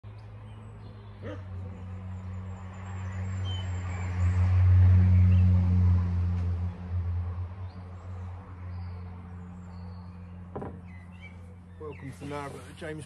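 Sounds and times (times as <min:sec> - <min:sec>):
birds chirping faintly: 0:07.5 - 0:13.0.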